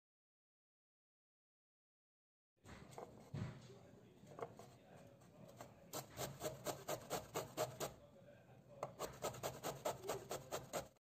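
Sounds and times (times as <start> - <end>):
grater scraping vegetable: 5.4 - 8.0, 8.9 - 11.0.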